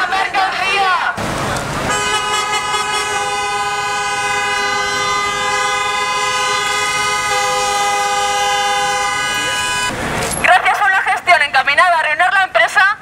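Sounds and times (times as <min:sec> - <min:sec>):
car horns blaring: 0:01.7 - 0:10.9.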